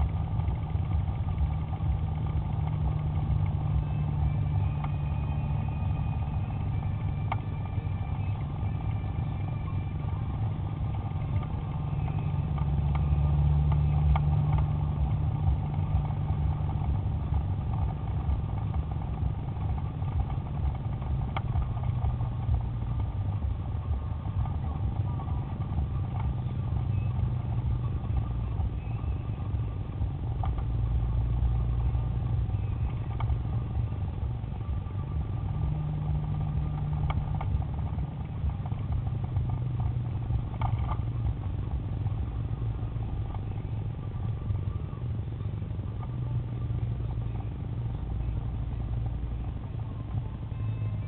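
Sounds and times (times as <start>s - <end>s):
car engine and tyre noise: 0.0s - 51.0s.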